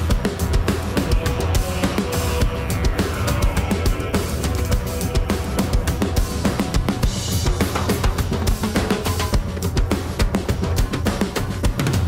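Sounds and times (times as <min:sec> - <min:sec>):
rock band playing a hymn: 0:00.0 - 0:09.2
drum kit played hard: 0:00.0 - 0:12.0.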